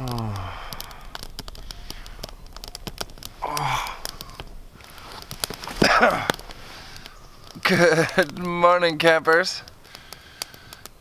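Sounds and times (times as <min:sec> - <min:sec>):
man murmuring: 0:00.0 - 0:00.6
breathy sigh: 0:00.0 - 0:01.2, 0:03.4 - 0:04.4
small clicks and crackles: 0:00.0 - 0:11.0.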